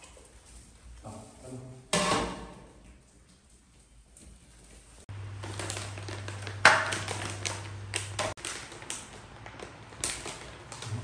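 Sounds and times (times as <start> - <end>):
plastic packet crinkling: 5.1 - 11.0.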